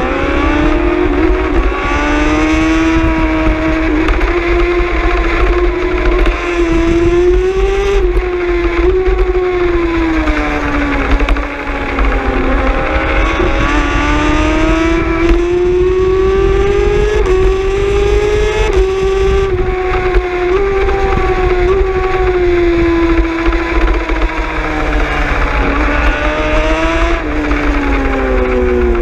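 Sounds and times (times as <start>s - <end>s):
gear upshifts: 0.0s - 29.0s
superbike engine at high revs: 0.0s - 29.0s
wind noise on microphone: 0.0s - 29.0s.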